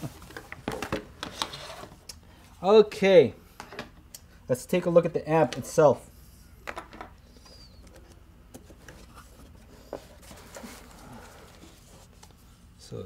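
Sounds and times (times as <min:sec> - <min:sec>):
cardboard and foam rustling: 0:09.0 - 0:12.4.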